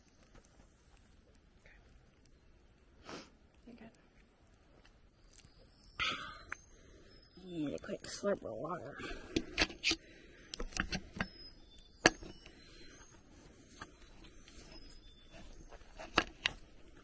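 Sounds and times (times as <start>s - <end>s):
high bird chirps: 10.6s - 16.1s.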